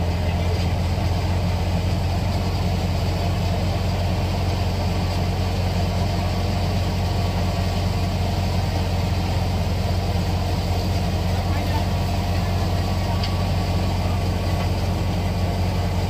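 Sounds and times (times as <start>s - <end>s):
thresher machine humming: 0.0s - 16.0s.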